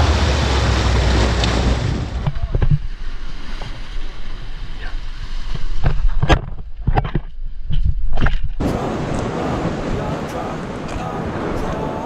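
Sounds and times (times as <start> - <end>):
wind rumble on microphone: 0.0 - 12.0
surf washing against rocks: 8.6 - 12.0.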